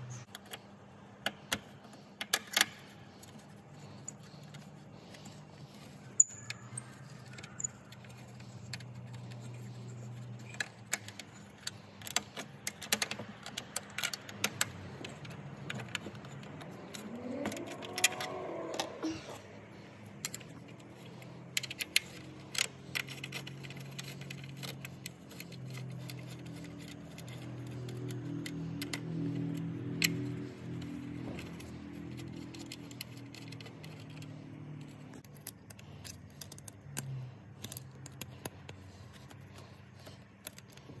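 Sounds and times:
metallic clicks of allen key: 10.1s - 18.9s, 20.1s - 40.8s.

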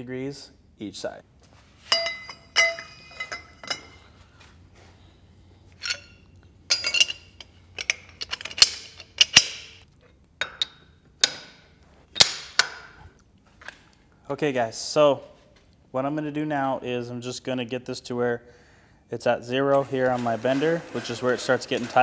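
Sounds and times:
metallic clinks of steel tube: 1.9s - 4.0s.

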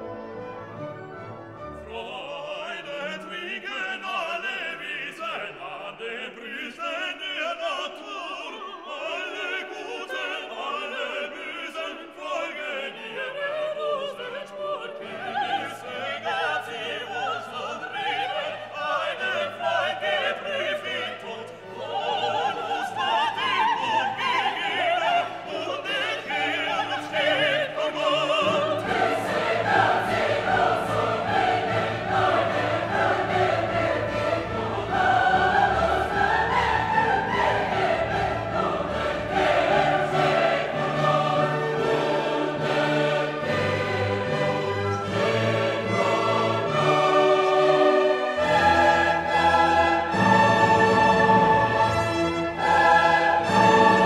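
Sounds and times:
orchestra playing: 0.0s - 3.6s, 21.7s - 54.0s
operatic singing: 1.6s - 54.0s.

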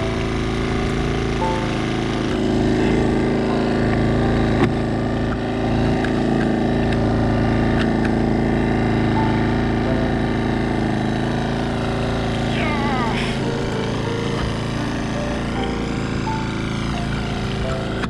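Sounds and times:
outboard motor idling: 0.0s - 18.0s.

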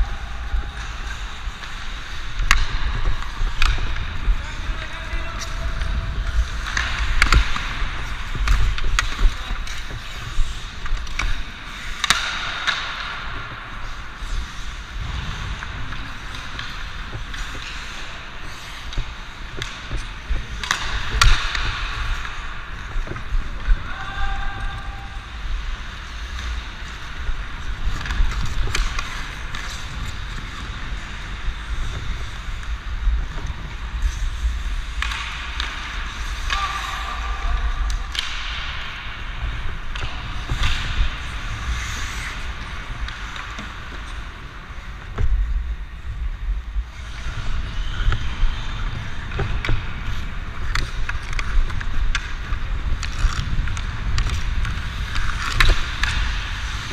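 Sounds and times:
hockey sticks clacking: 0.0s - 56.9s
skate blades scraping ice: 0.0s - 56.9s
wind rumble on microphone: 13.2s - 18.3s.

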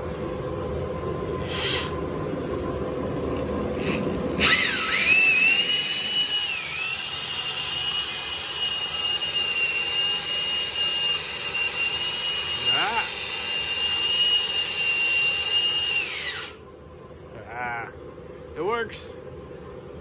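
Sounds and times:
drill whining: 1.4s - 2.0s, 3.8s - 16.6s.

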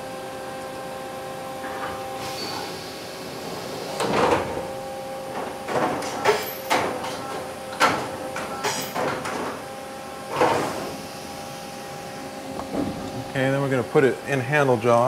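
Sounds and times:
steady machine hum: 0.0s - 15.0s
door sliding shut: 1.6s - 9.6s, 10.3s - 11.0s, 12.6s - 13.2s
tool changer clunks and sliding: 1.6s - 9.7s, 12.5s - 13.3s.

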